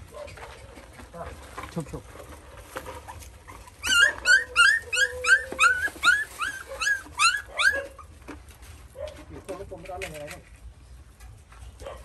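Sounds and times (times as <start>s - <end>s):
puppy yelping: 3.0s - 8.2s.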